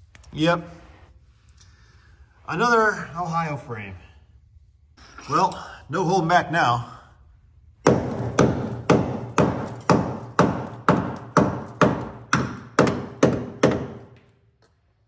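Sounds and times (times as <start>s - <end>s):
hammer striking steel frame: 7.8s - 14.3s.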